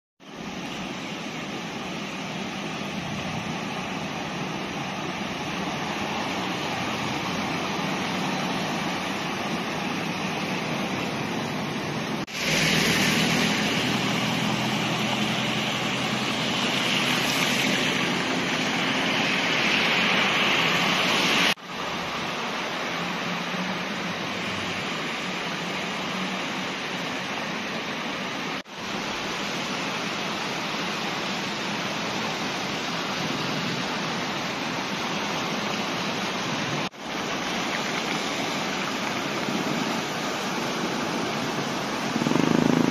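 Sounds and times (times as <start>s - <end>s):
tyres hissing through water: 0.2s - 42.9s
car engines: 0.3s - 42.9s.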